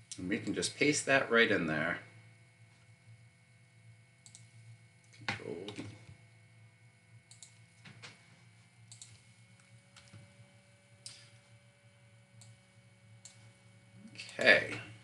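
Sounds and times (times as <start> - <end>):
computer mouse and keyboard clicks: 4.2 - 6.0, 7.2 - 8.2, 8.8 - 10.3.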